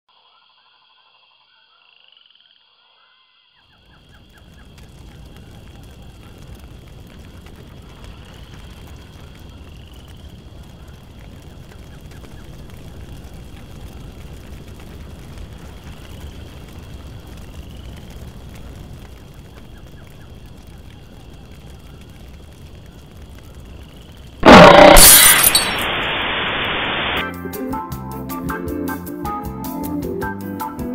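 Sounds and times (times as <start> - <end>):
frogs calling: 0.1 - 6.2
large fire crackling: 3.7 - 27.4.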